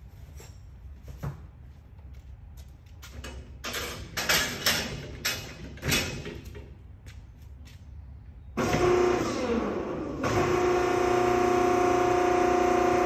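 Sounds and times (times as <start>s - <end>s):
metal rattling and clanking: 3.1s - 6.8s.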